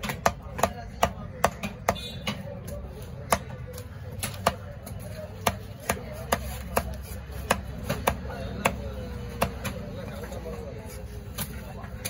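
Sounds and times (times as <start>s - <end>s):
knife chopping on wooden block: 5.4s - 9.8s.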